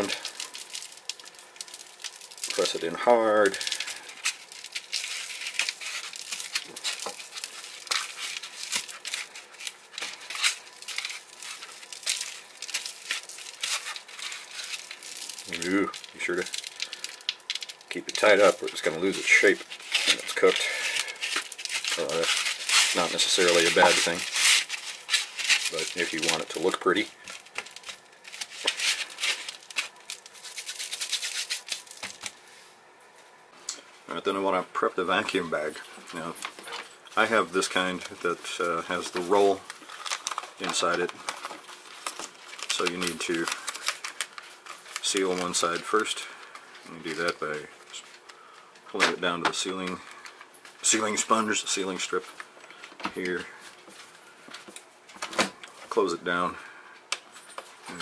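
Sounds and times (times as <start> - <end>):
foam tray crinkling: 0.0 - 32.5, 35.1 - 56.4
hands rubbing seasoning into meat: 18.2 - 26.4, 30.2 - 32.0
hands rubbing spice into meat: 28.5 - 31.9.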